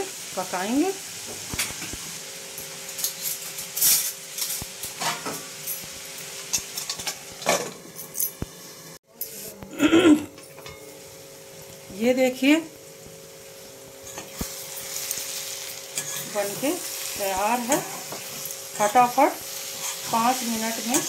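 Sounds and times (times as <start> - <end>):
metal spoon scraping a metal pan: 2.9 - 5.8, 14.0 - 21.0.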